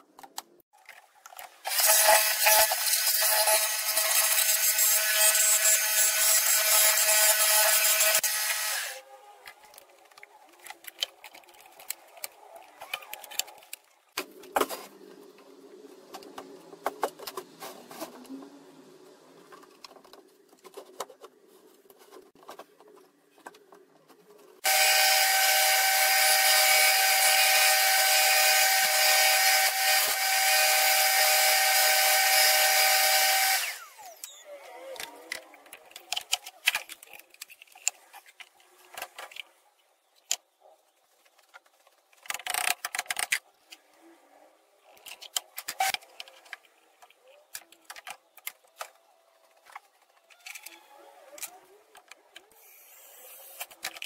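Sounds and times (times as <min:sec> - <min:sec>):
power tool whining: 0:01.7 - 0:09.0, 0:24.6 - 0:34.4.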